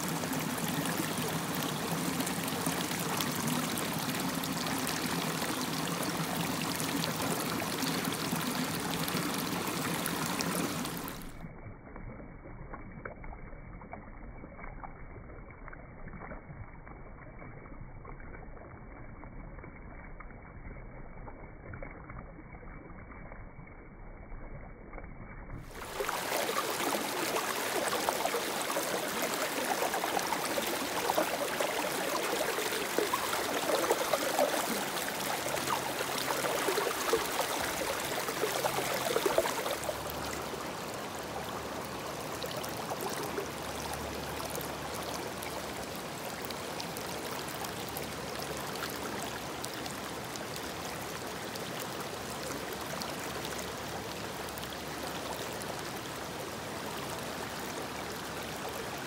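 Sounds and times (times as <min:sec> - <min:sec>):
river water running: 0:00.0 - 0:11.5, 0:25.6 - 0:59.0.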